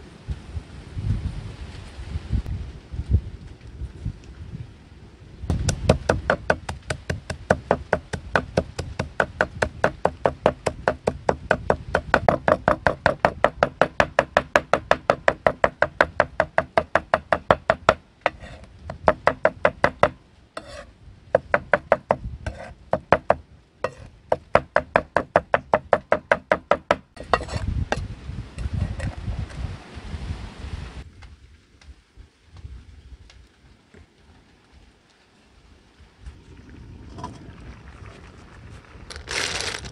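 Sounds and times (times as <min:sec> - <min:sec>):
cleaver chopping on wooden board: 0:05.5 - 0:20.8, 0:21.4 - 0:27.5.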